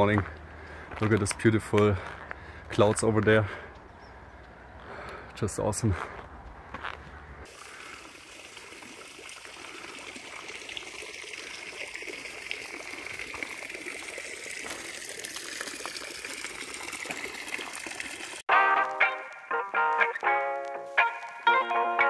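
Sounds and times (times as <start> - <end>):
fountain water splashing: 7.4 - 18.5.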